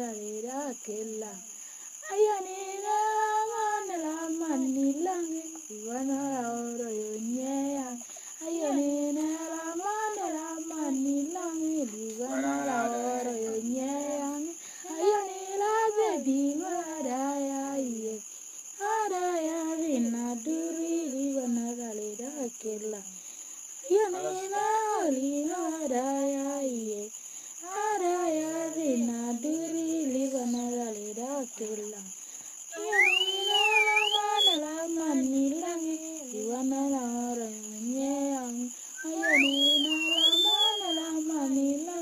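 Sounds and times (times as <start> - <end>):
girl singing unaccompanied: 0.0 - 23.2, 23.8 - 42.0.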